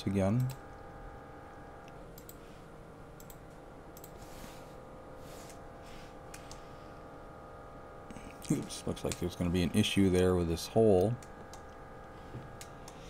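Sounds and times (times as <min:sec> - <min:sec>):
steady low hum: 0:00.0 - 0:13.0
computer mouse clicks: 0:01.8 - 0:02.4, 0:03.2 - 0:04.2, 0:11.0 - 0:11.8.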